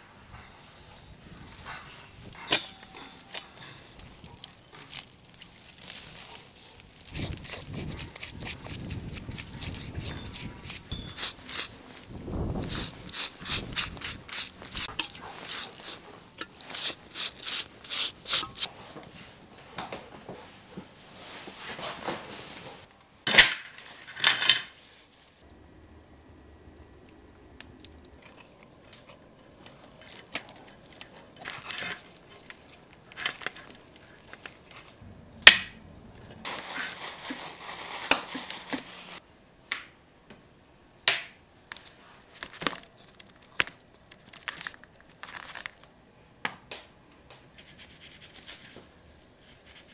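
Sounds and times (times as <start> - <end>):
wood fire crackling: 0.0 - 18.7, 23.8 - 39.2
scraping a wire grill grate: 1.6 - 5.1, 5.8 - 18.7, 29.8 - 33.9
knife cutting tough skin: 7.1 - 11.8, 12.6 - 18.7.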